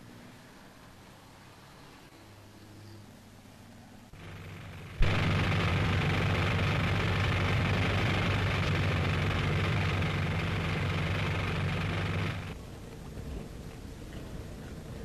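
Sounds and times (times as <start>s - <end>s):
motorboat engine running: 4.2s - 12.6s.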